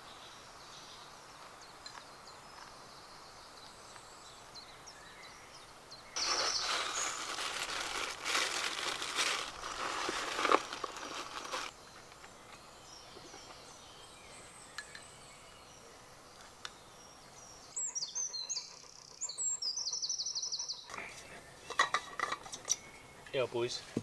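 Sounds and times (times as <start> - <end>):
songbird singing trill: 0.0 - 7.3, 11.7 - 23.8
crinkling: 6.2 - 11.7.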